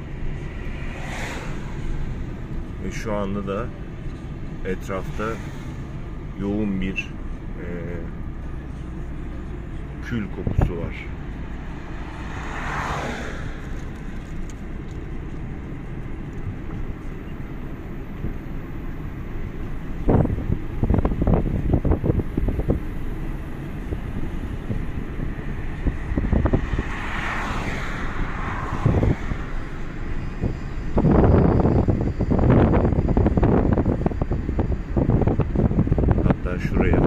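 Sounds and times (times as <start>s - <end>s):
car interior road rumble: 0.0s - 37.0s
vehicles passing whoosh: 0.0s - 37.0s
wind buffeting microphone: 18.0s - 37.0s.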